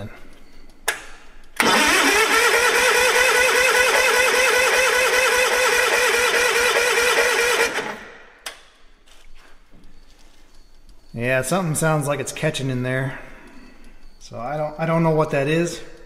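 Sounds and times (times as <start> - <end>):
engine cranking without starting: 1.5 - 8.2.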